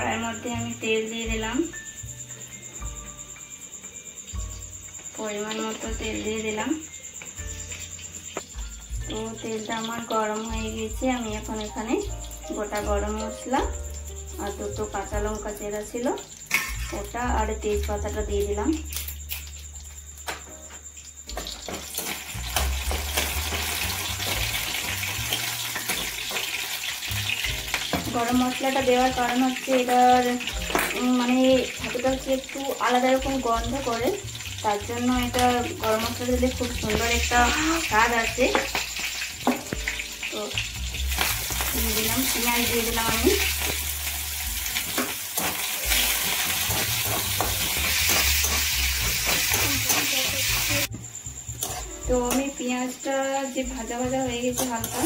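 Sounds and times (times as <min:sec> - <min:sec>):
spices sizzling in hot oil: 0:00.0 - 0:55.0
spoon stirring in a pan: 0:41.1 - 0:50.9.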